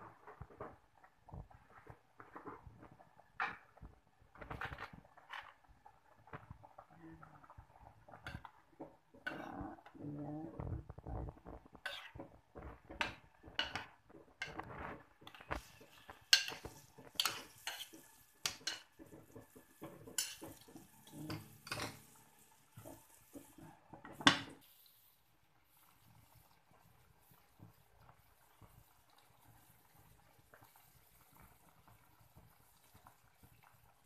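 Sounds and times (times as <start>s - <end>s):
metal ladle scraping clay pot: 11.6s - 18.8s.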